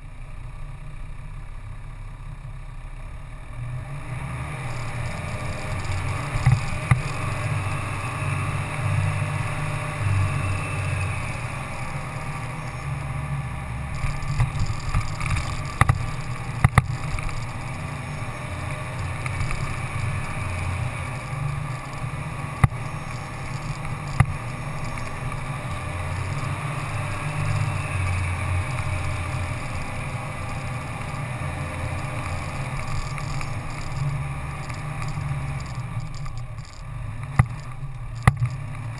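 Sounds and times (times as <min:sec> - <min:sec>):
vehicle engine rumbling: 0:00.0 - 0:38.9
sharp knocks over rough ground: 0:36.6 - 0:38.6.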